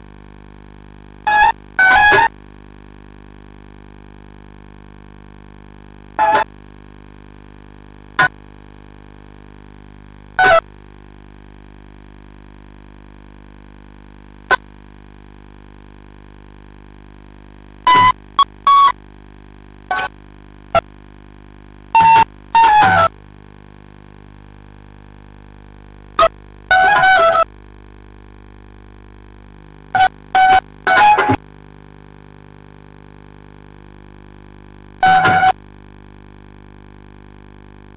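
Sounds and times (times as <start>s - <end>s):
steady low hum: 0.0s - 4.4s, 5.8s - 35.5s.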